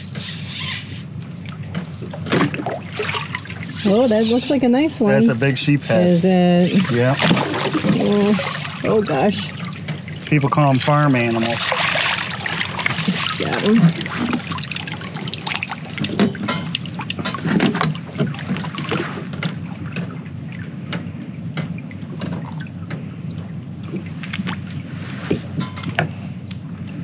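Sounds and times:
net and fish clicking and knocking: 0.0 - 3.8
water splashing and dribbling: 0.0 - 27.0.

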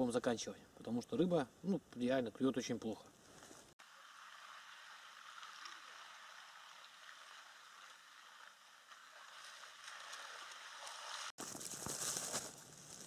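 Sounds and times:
faint outdoor hiss: 0.0 - 13.0
close rustling and crackling: 9.8 - 13.0.

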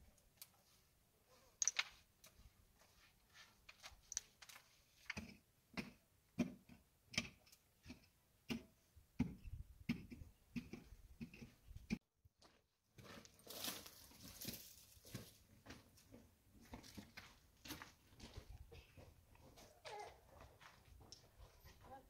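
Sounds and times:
footsteps on gravel: 12.4 - 22.0.

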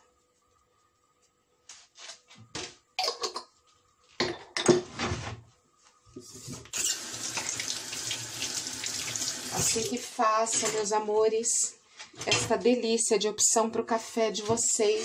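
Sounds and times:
dishes and utensils clattering: 3.0 - 3.6, 4.2 - 4.9, 6.8 - 7.6
tap water running into sink: 6.7 - 10.0.

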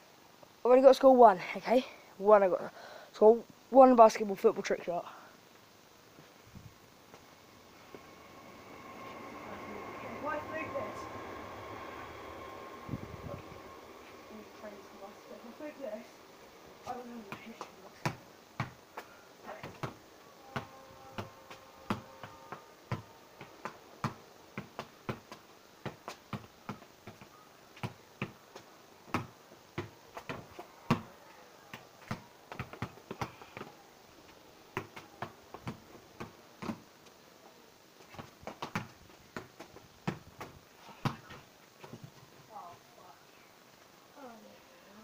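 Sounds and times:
football being kicked: 40.1 - 41.4.

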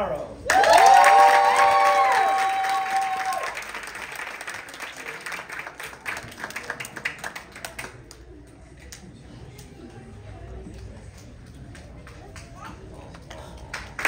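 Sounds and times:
audience applause: 0.5 - 8.3, 11.8 - 14.0.

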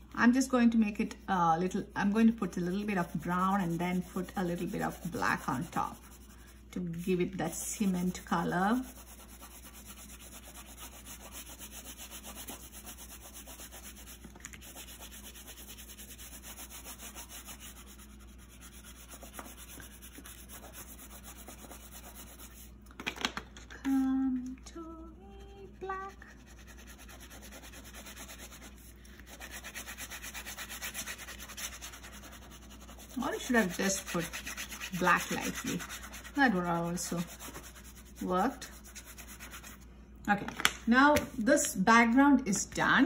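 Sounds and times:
crayon scratching on paper: 1.7 - 6.4, 7.0 - 22.7, 26.0 - 39.8
person humming: 23.8 - 26.3.

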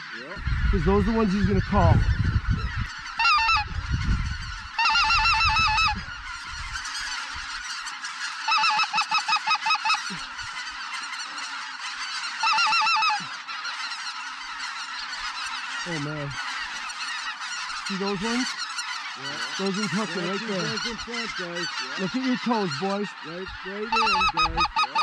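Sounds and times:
flock of geese honking: 0.0 - 25.0
loud clucking honks close by: 3.0 - 3.7, 7.0 - 25.0.

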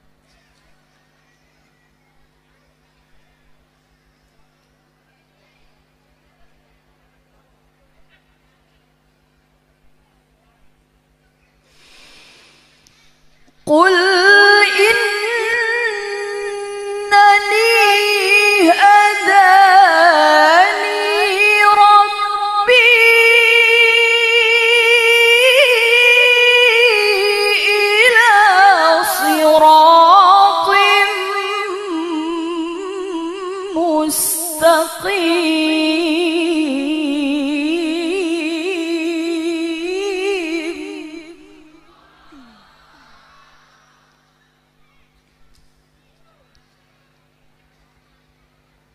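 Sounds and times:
woman breathing: 11.7 - 13.3, 41.4 - 45.5
woman reciting melodically: 13.5 - 42.6.

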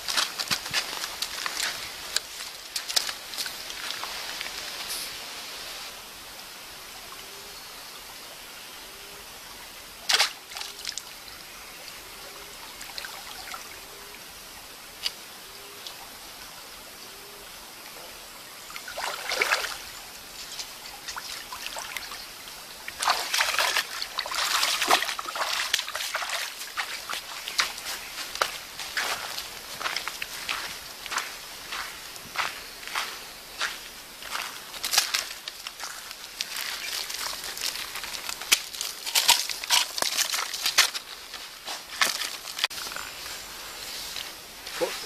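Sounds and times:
water trickling in stream: 0.0 - 7.2, 9.2 - 45.0
splashing and sloshing water: 10.0 - 11.2, 18.7 - 31.3, 34.2 - 42.9.

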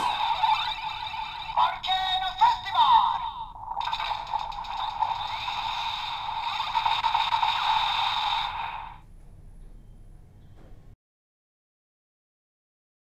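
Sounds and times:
toy electronic sound effect: 0.0 - 9.0.

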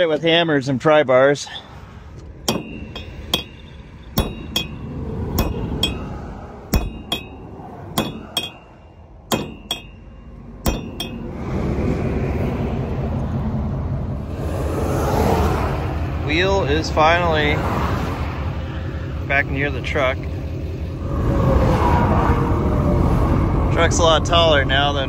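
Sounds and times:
steady rushing noise: 1.7 - 25.0
hammer striking metal: 2.4 - 11.3.

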